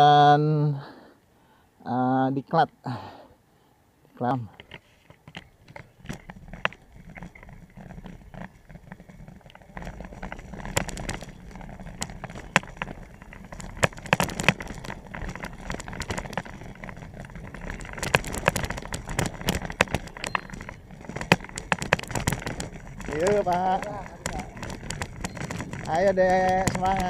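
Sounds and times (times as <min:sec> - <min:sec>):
bicycle rattling on rough road: 0:04.5 - 0:27.0
wind and tyre rumble: 0:04.8 - 0:27.0.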